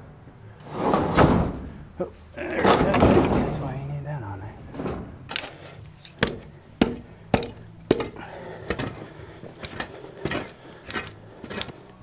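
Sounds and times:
shovel scraping dirt: 8.0s - 12.0s.

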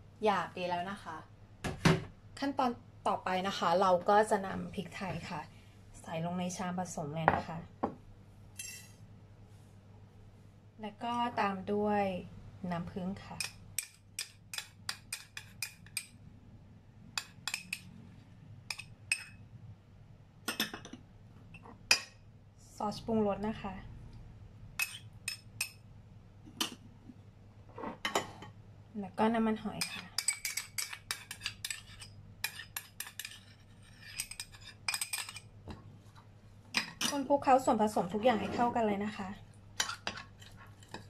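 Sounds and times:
metal spoon clinking on ceramic bowl: 8.6s - 9.0s, 17.2s - 17.9s, 18.7s - 19.4s, 29.8s - 33.5s, 34.1s - 35.5s
spoon scraping ceramic bowl: 24.8s - 25.8s, 29.7s - 35.5s, 38.2s - 38.8s, 39.8s - 41.0s.

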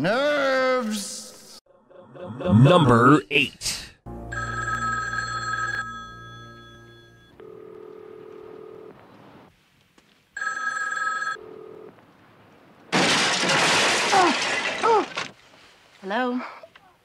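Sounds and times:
telephone ringing: 4.3s - 8.9s, 10.4s - 11.9s.

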